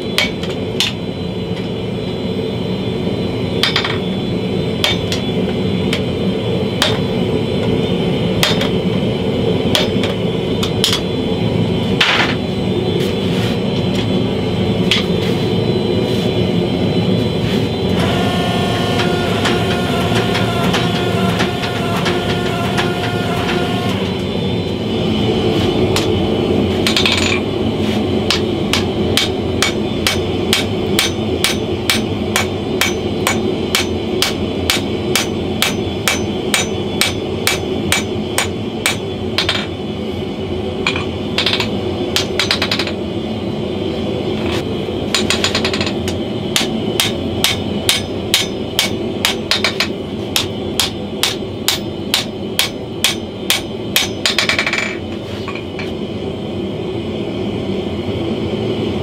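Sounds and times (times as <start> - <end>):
hammer striking hot steel on anvil: 0.0 - 1.0, 4.8 - 5.3, 6.8 - 7.1, 8.4 - 8.7, 9.7 - 11.1, 18.0 - 23.9, 26.8 - 27.4, 28.2 - 39.7, 40.8 - 43.0, 45.1 - 55.9
steady background noise: 0.0 - 59.0.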